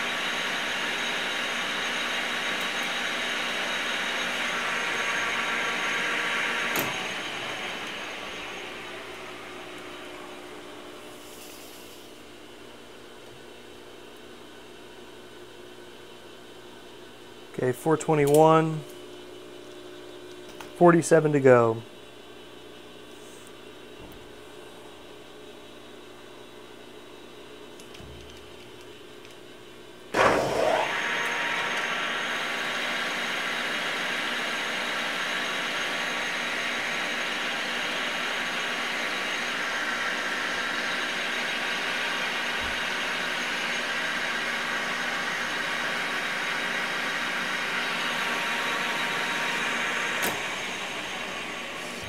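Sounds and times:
lathe tool cutting steel: 0.0 - 9.5, 30.2 - 52.0
lathe spindle running whine: 0.0 - 12.3, 30.2 - 52.0
lathe spinning up whine: 0.0 - 12.3, 30.2 - 52.0.

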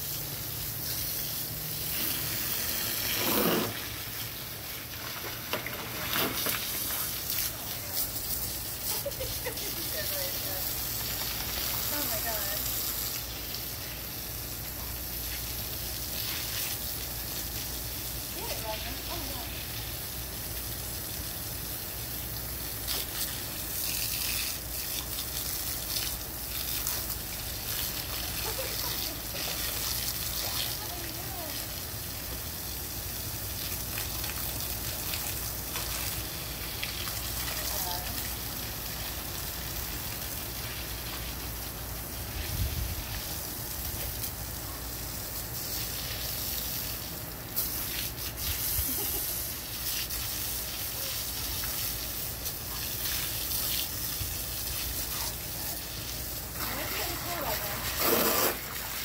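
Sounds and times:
garden hose spraying water: 0.0 - 59.0
puppy splashing in water: 0.0 - 59.0
water splashing: 45.6 - 59.0.

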